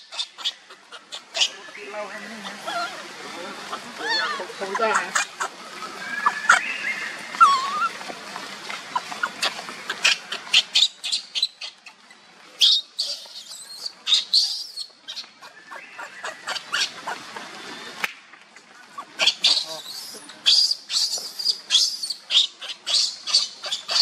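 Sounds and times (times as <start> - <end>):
infant monkey squealing: 0.0 - 3.0, 3.7 - 5.5, 6.1 - 6.7, 7.4 - 7.9, 12.6 - 15.2, 16.0 - 17.2, 19.0 - 24.0.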